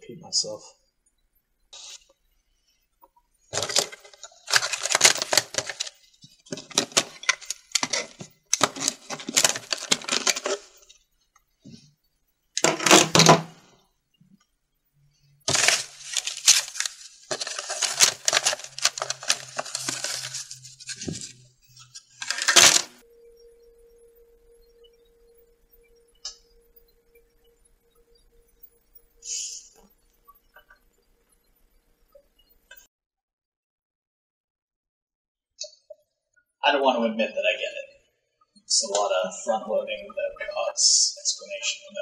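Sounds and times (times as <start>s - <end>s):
small hard objects clattering in box: 3.5s - 10.8s, 15.5s - 21.3s, 22.2s - 23.0s.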